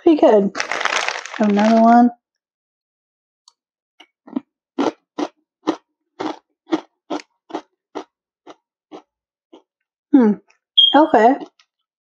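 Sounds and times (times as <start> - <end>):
person chewing crisp chips: 0.6 - 1.9, 4.3 - 9.7.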